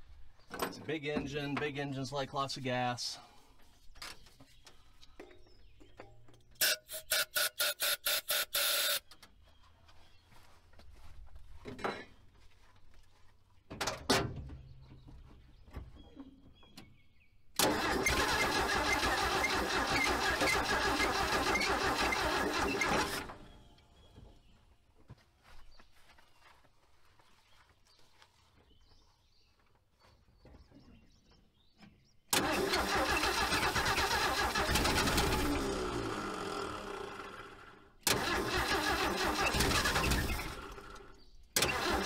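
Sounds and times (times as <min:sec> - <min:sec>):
starter motor cranking engine: 0:17.6 - 0:23.5, 0:32.3 - 0:42.0.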